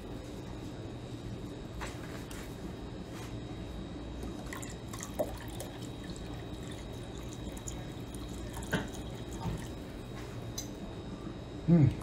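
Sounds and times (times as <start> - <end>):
low steady hum: 0.0 - 12.0
liquid trickling into glass: 4.4 - 10.7.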